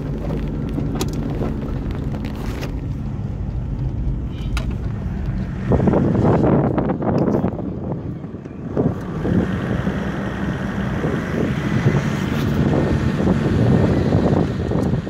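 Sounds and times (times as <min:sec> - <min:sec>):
vehicle rumble on dirt track: 0:00.0 - 0:15.0
wind buffeting microphone: 0:00.0 - 0:15.0.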